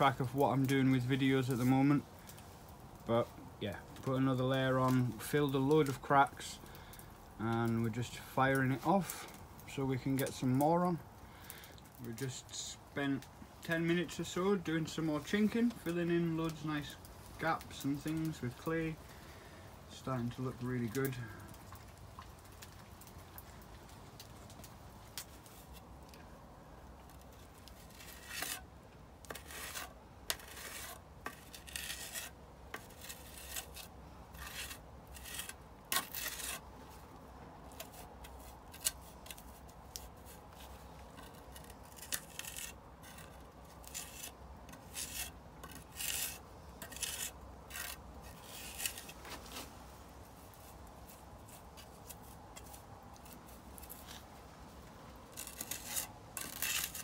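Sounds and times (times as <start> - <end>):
flat tool scraping wet clay: 27.6 - 36.6, 37.7 - 49.6, 55.3 - 57.0.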